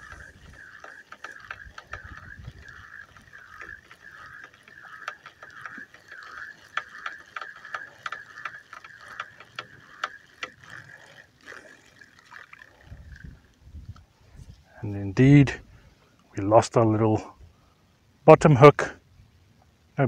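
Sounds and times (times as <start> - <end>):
fishing reel whirring: 0.0 - 14.0
reel clicks: 0.0 - 14.1.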